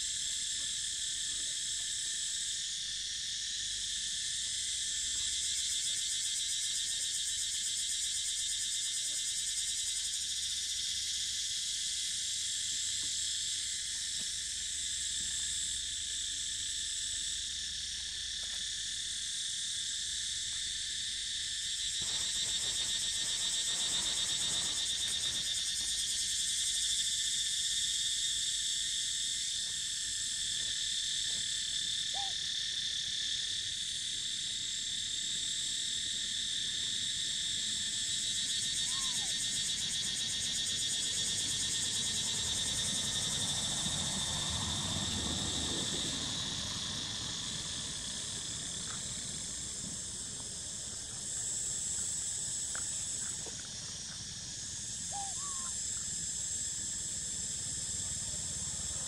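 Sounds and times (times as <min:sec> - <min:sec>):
high-pitched insect chorus: 0:00.0 - 0:59.0.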